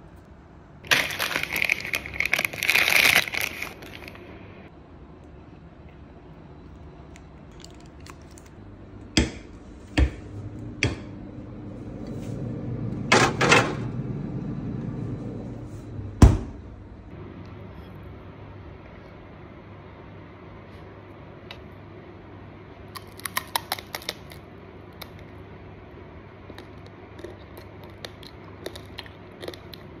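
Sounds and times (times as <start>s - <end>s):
low steady hum: 0.0s - 30.0s
fridge door thumping shut: 16.2s - 16.6s.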